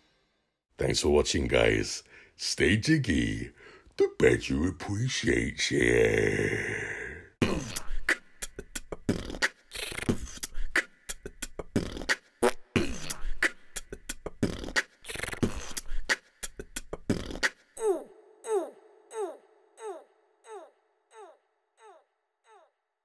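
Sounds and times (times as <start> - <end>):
beatboxing: 7.4 - 18.0.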